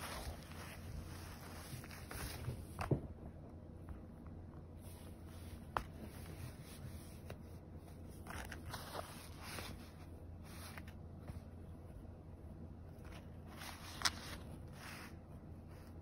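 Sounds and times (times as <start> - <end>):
cat scratching fabric: 0.0 - 2.8, 12.9 - 16.0.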